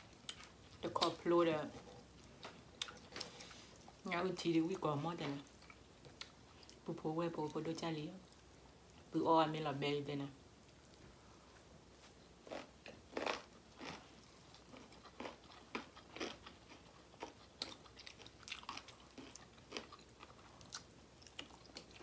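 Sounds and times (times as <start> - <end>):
chewing and biting food: 12.5 - 22.0.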